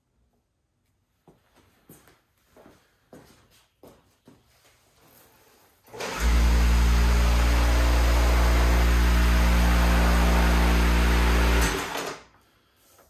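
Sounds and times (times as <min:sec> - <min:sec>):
electric motor humming: 0:06.0 - 0:12.0.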